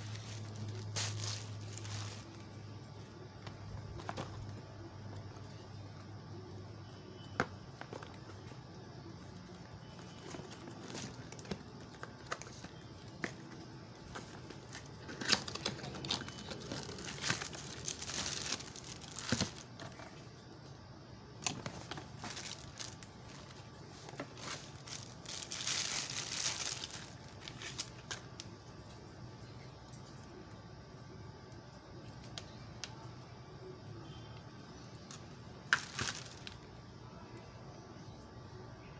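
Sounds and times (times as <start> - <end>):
plastic bag crinkling: 0.0 - 2.9, 9.9 - 20.1, 21.4 - 28.5, 35.1 - 36.6.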